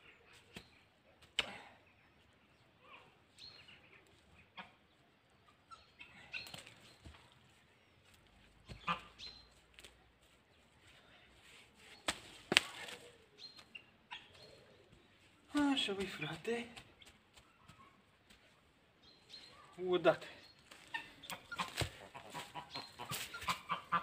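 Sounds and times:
rustles of hands in soil: 6.4 - 13.7, 20.6 - 24.0.

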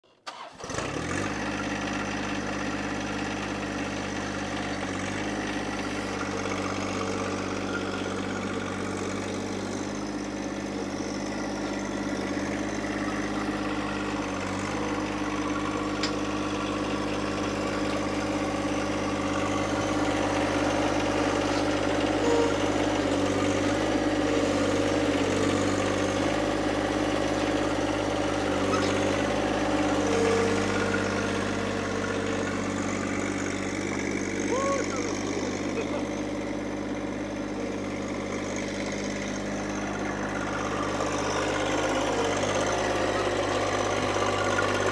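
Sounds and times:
tractor diesel engine running: 0.0 - 44.9.

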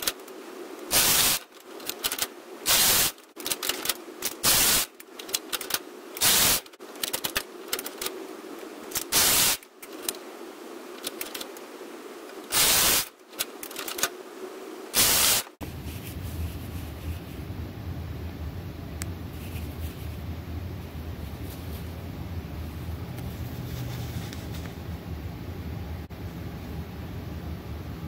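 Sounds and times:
knitting machine needles rattling: 0.0 - 8.2, 13.2 - 14.1
steady low hum: 0.0 - 28.0
knitting machine carriage clatter: 1.4 - 2.3.

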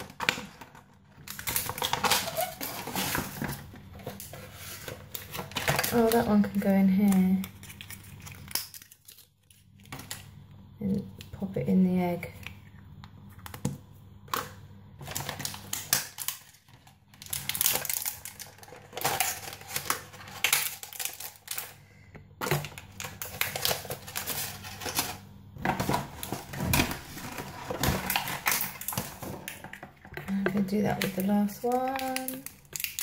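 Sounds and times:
plastic capsules clicking together: 28.8 - 33.0.

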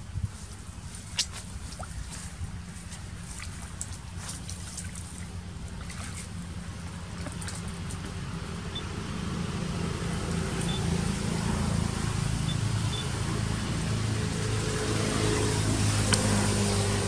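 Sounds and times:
low engine rumble: 0.0 - 17.0
water splashing in steel basin: 3.3 - 8.2.

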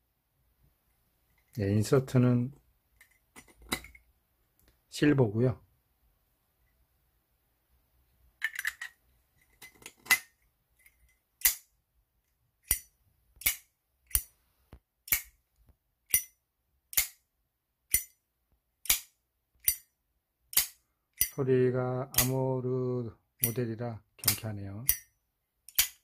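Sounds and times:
lighter lid clicking open and shut: 25.7 - 26.0.

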